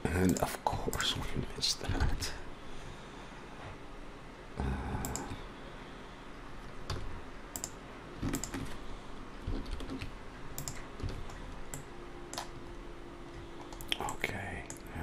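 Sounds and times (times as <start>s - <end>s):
keyboard keystrokes: 6.9s - 8.7s, 9.4s - 12.5s.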